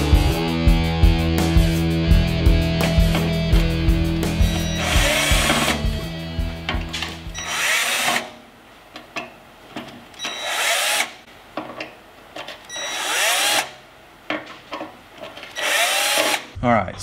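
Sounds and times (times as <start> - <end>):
cordless drill whining: 4.5 - 5.9, 7.3 - 8.3, 10.2 - 11.2, 12.7 - 13.8, 15.6 - 16.5.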